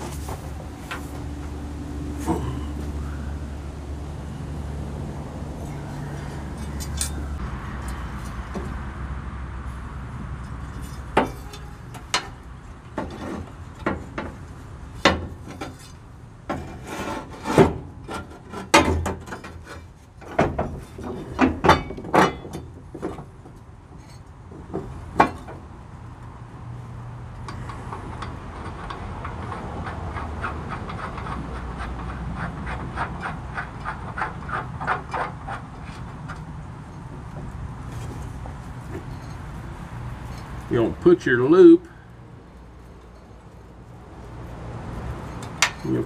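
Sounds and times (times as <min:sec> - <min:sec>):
metal knocks and clinks: 0:45.2 - 0:46.0.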